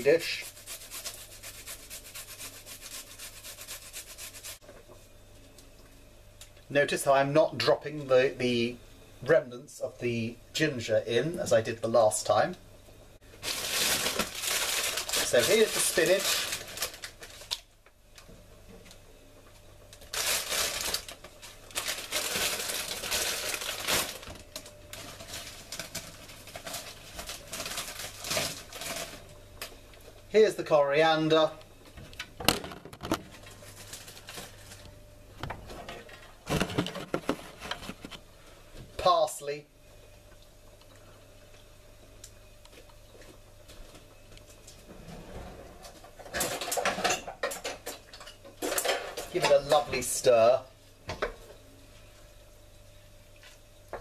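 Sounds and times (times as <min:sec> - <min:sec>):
faint steady hum: 0:00.0 - 0:54.0
plastic bag crinkling: 0:13.4 - 0:17.6, 0:20.0 - 0:29.2.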